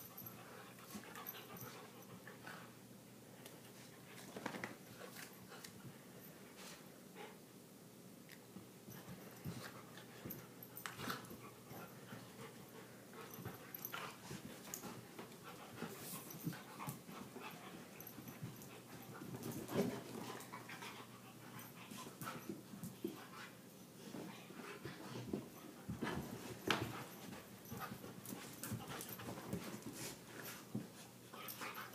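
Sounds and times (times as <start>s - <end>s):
dogs scuffling: 13.2s - 31.9s.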